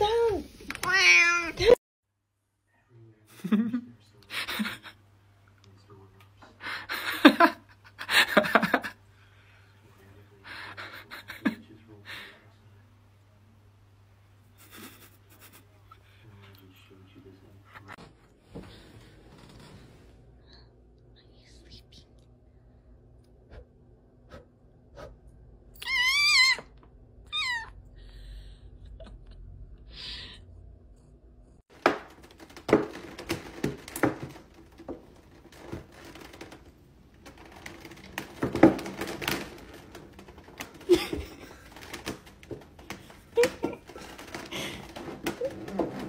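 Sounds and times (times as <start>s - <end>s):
cat meowing: 25.8s - 27.8s
plastic container crackling: 31.7s - 46.0s.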